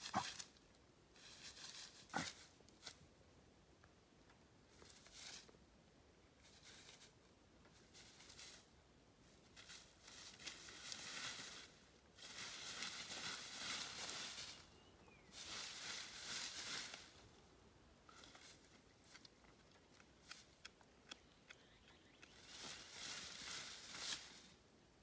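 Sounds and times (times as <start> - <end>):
rustling in dry grass and leaves: 0.0 - 3.2, 4.6 - 20.7, 22.0 - 24.8
small sharp clicks and crunches: 18.1 - 21.6.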